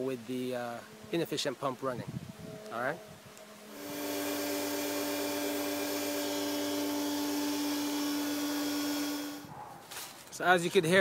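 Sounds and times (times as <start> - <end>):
pool pump motor humming: 3.7 - 9.5.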